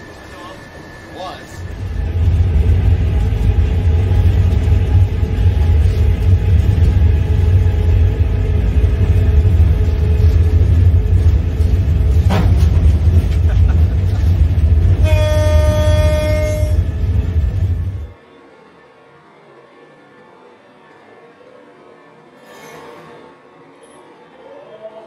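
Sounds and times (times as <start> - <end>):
locomotive engine rumble: 0.0 - 18.2
locomotive horn blast: 14.9 - 18.1.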